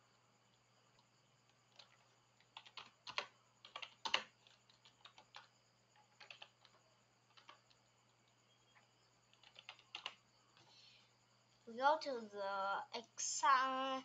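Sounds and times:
keyboard keys clicking: 1.7s - 7.7s, 9.3s - 10.2s.

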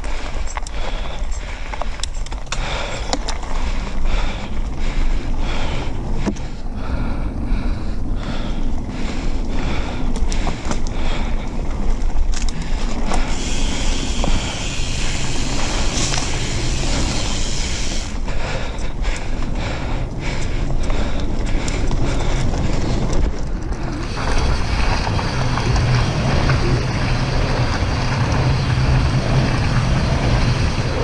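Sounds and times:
wind buffeting microphone: 0.0s - 31.0s
tyres rolling over gravel: 8.8s - 31.0s
high hiss: 13.3s - 18.2s.

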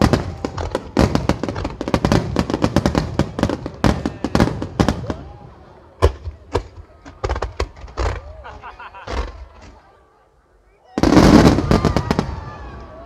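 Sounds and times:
loud firework booms: 0.0s - 5.2s, 11.0s - 13.0s.

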